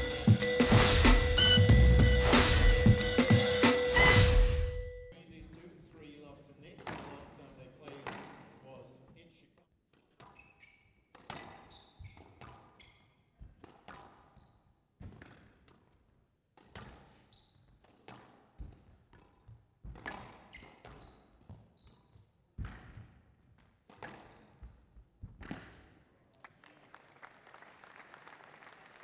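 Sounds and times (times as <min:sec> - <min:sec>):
shoes squeaking on court: 0:09.9 - 0:26.2
squash ball hits: 0:11.1 - 0:12.7, 0:19.9 - 0:21.0, 0:23.9 - 0:25.8.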